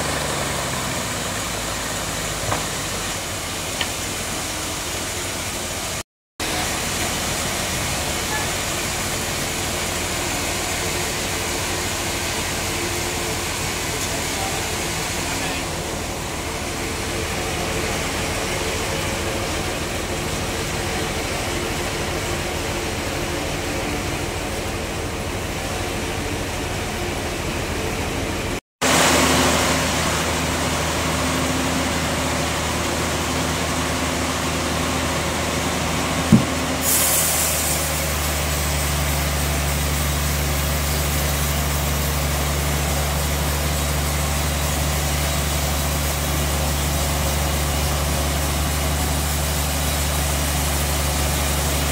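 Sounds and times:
bandsaw machinery running: 0:00.0 - 0:28.0
outdoor background hum: 0:00.0 - 0:51.9
sharp knock: 0:36.3 - 0:36.6.

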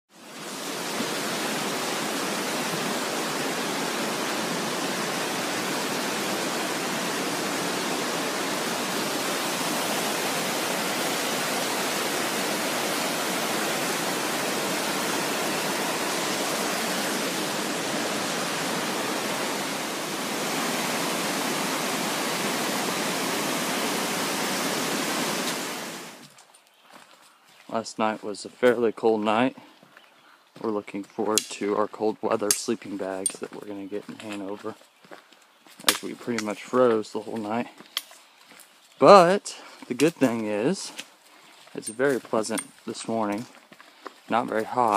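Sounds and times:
stream rushing over stones: 0:00.1 - 0:26.4, 0:44.3 - 0:44.9.

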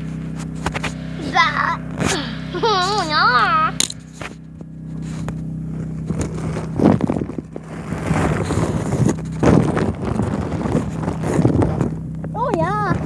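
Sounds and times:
phone handling scrapes on microphone: 0:00.0 - 0:01.0, 0:03.9 - 0:12.0
low hum: 0:00.0 - 0:13.0.

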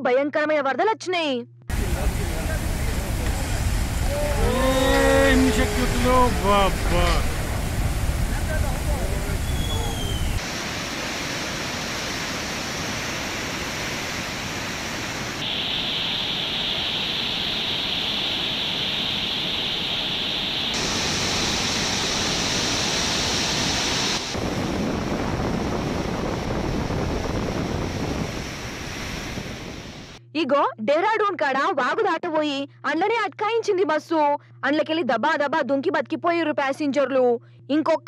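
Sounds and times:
floodwater roaring: 0:01.7 - 0:30.2.

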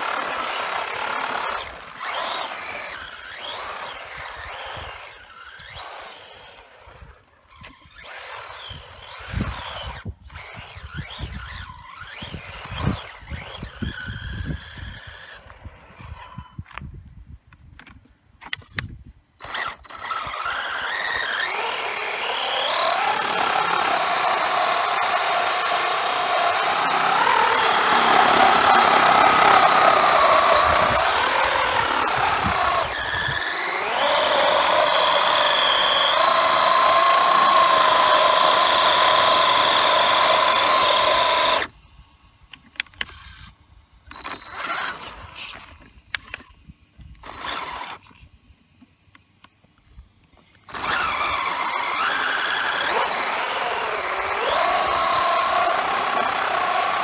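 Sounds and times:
electric motor whining: 0:00.0 - 0:16.7, 0:19.4 - 0:41.8, 0:47.2 - 0:48.1, 0:50.6 - 0:57.0
wheels spinning on gravel: 0:00.0 - 0:16.8, 0:19.5 - 0:41.7, 0:50.6 - 0:57.0.

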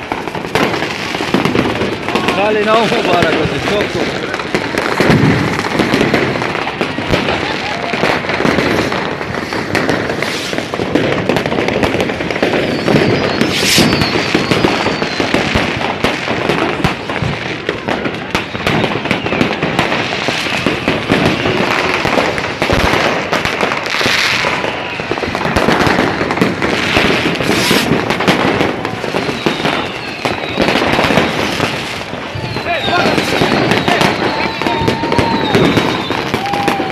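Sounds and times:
fireworks crackling bangs: 0:00.0 - 0:36.9
wavering firework whistle: 0:00.0 - 0:36.9.

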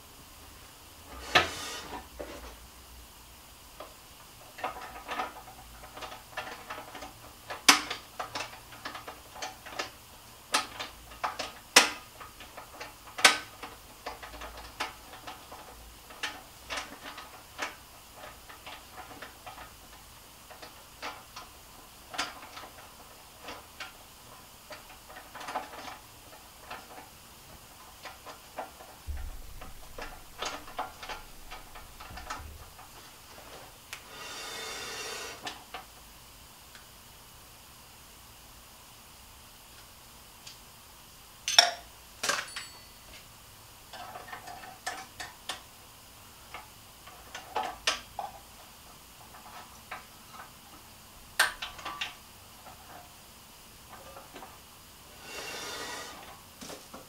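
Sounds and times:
clicks and taps of parts: 0:03.8 - 0:24.0, 0:41.4 - 0:43.3, 0:43.9 - 0:45.7, 0:46.5 - 0:53.1.

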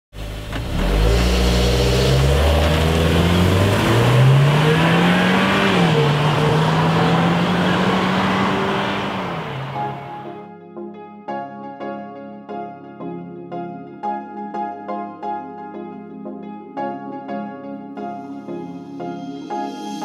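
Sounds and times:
car engine accelerating: 0:00.2 - 0:10.3.

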